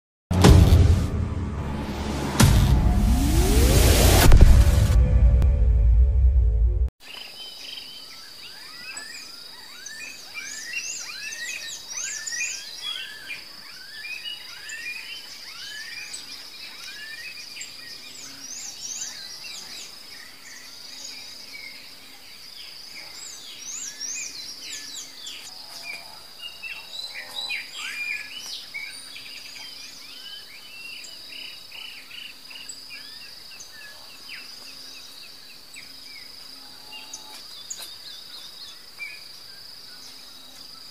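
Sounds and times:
music intro: 0:00.3 - 0:06.9.

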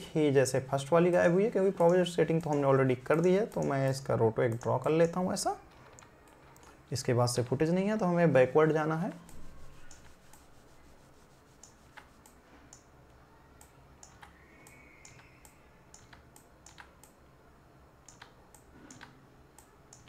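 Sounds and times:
mouse and keyboard clicks: 0:14.0 - 0:17.2, 0:18.0 - 0:20.0.

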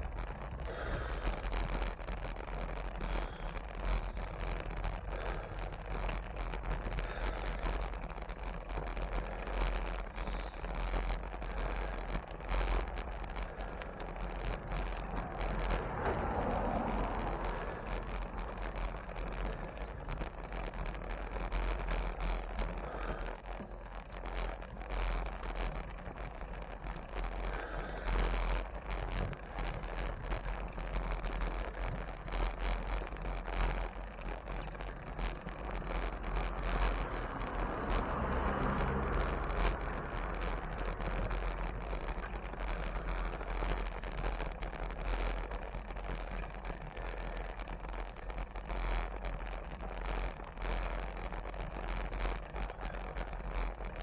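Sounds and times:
road and traffic noise: 0:00.0 - 0:54.0
low engine-like hum: 0:12.8 - 0:23.3, 0:34.4 - 0:43.4.

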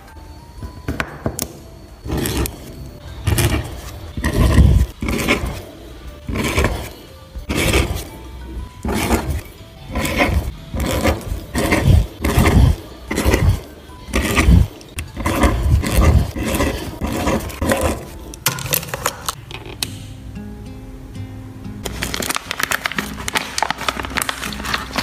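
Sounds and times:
pen scratching on paper: 0:02.0 - 0:18.3.

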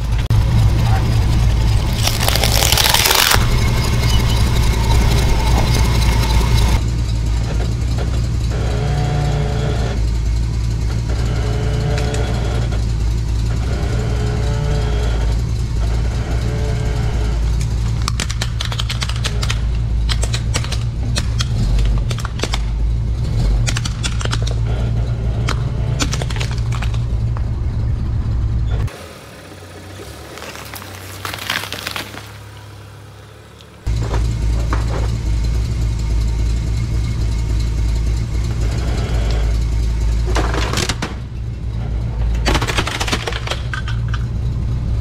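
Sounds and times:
truck engine humming: 0:00.0 - 0:45.0
hard plastic cracking: 0:01.8 - 0:03.4, 0:25.5 - 0:27.1, 0:42.5 - 0:44.2.

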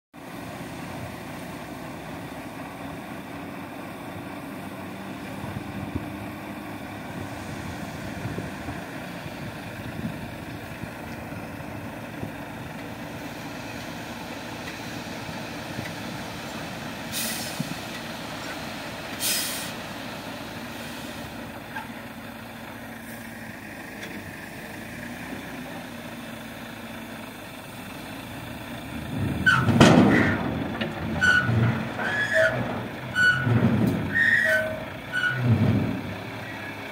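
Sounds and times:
diesel truck engine running: 0:00.2 - 0:36.9
air brake hisses: 0:17.1 - 0:17.7, 0:19.2 - 0:19.8.

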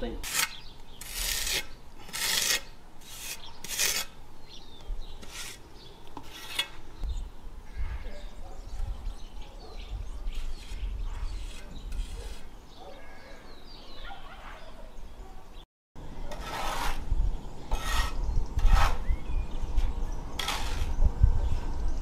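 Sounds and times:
plastering tool scraping render: 0:00.2 - 0:04.2, 0:05.2 - 0:05.6, 0:06.2 - 0:06.8, 0:10.3 - 0:12.5, 0:16.3 - 0:17.1, 0:17.7 - 0:19.1, 0:19.7 - 0:21.0.

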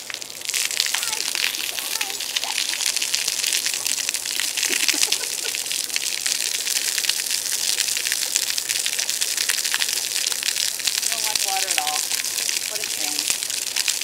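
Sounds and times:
hose nozzle spraying water: 0:00.0 - 0:07.6
droplets splattering on concrete: 0:00.0 - 0:14.0.

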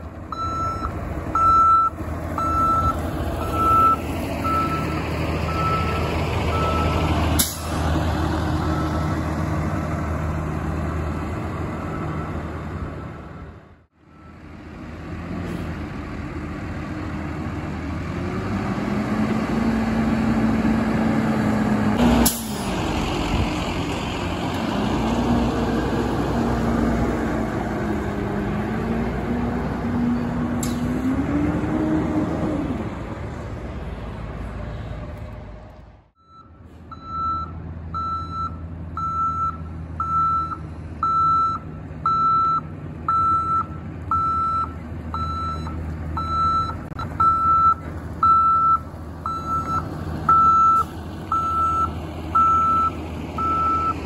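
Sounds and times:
diesel truck engine running: 0:00.0 - 0:54.0
reversing alarm beeping: 0:00.3 - 0:04.9, 0:05.5 - 0:07.0, 0:36.2 - 0:54.0.

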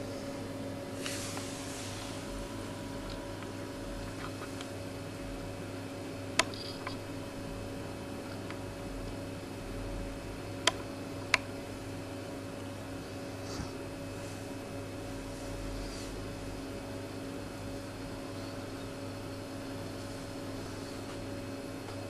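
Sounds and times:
low electrical hum: 0:00.0 - 0:22.0
sharp clicks: 0:06.4 - 0:07.0.

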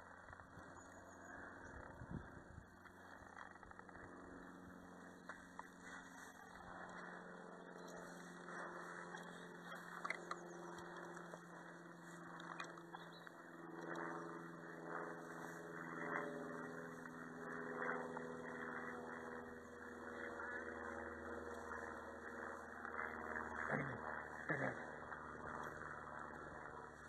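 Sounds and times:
faint mechanical hum: 0:00.0 - 0:27.0
footsteps through dry grass: 0:05.1 - 0:13.1.

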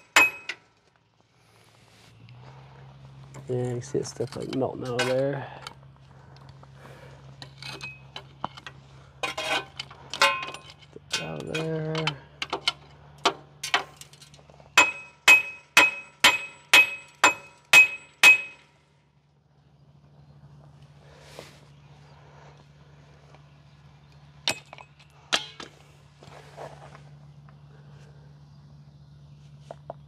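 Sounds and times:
sharp metallic taps: 0:00.0 - 0:00.6, 0:14.7 - 0:18.8
low hum: 0:00.0 - 0:30.0
metal clinks and scrapes: 0:03.2 - 0:05.8, 0:07.3 - 0:18.8, 0:24.2 - 0:26.9.

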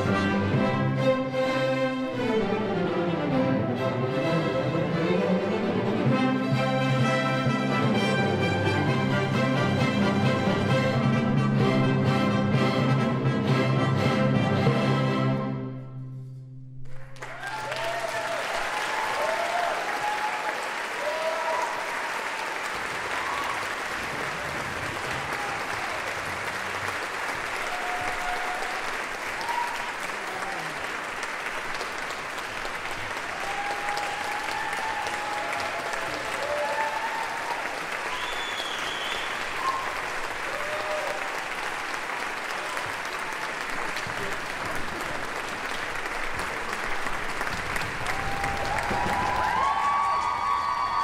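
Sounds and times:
audience applauding: 0:16.8 - 0:51.0.

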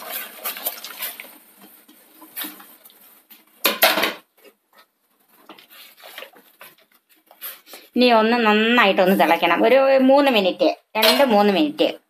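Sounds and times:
clatter of dishes: 0:03.6 - 0:04.2.

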